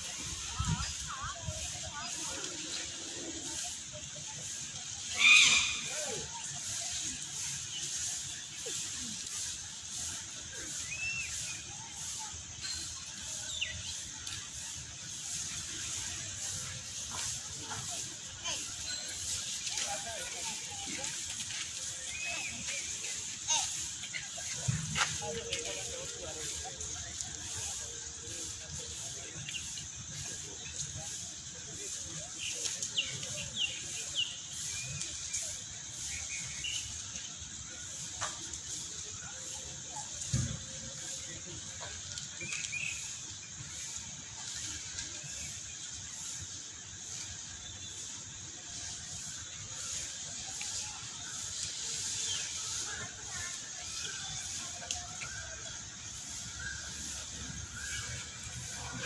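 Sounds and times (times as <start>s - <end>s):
steady high hiss: 0.0s - 59.0s
whistled bird calls: 5.0s - 6.5s, 10.7s - 11.8s.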